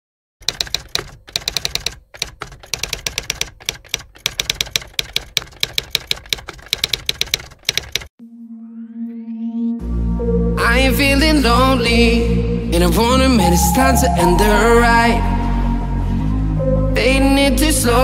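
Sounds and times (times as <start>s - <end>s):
typewriter keys clacking: 0.4s - 8.1s.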